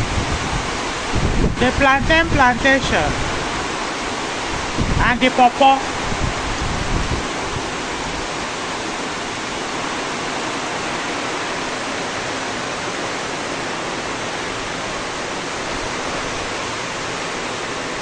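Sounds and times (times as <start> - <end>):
heavy rain falling: 0.0 - 18.0.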